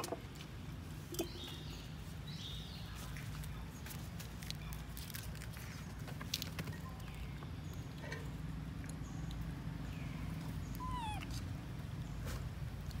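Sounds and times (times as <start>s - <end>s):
baby macaque crying: 10.8s - 11.3s.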